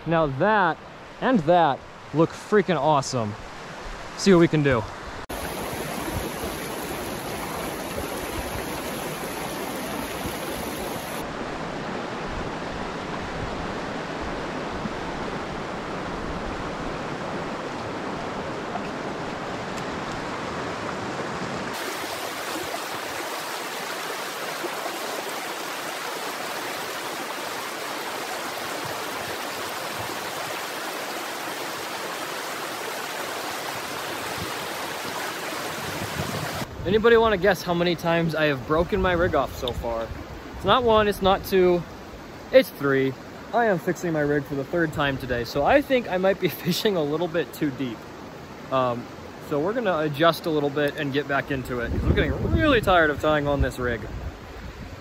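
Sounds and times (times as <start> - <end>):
river rushing over rocks: 5.3 - 12.0, 13.0 - 36.7.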